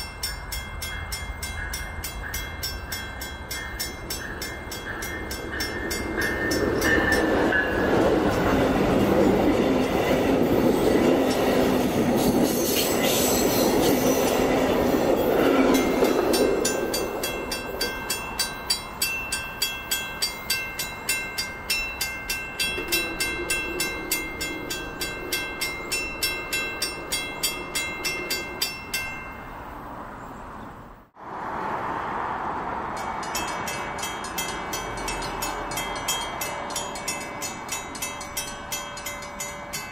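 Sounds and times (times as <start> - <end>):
passenger train passing: 0.0 - 39.9
train wheels clicking over rail joints: 1.5 - 29.2.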